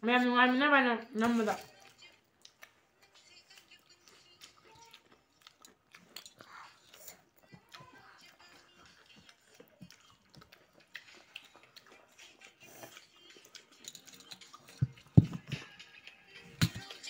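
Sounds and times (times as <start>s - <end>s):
person chewing food: 1.6s - 17.0s.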